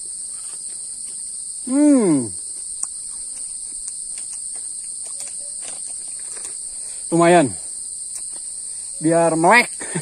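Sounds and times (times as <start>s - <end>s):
insects chorus: 0.0s - 10.0s
man's short voiced sound: 1.7s - 2.4s.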